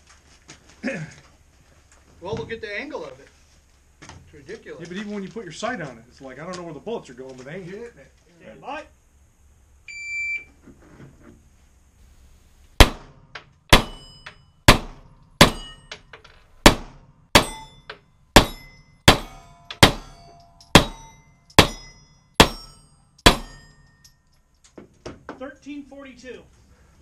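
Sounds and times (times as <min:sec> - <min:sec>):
pistol shots: 0:12.7 - 0:15.9, 0:16.6 - 0:17.8, 0:18.4 - 0:23.7
metallic clangs of steel targets: 0:12.8 - 0:24.4.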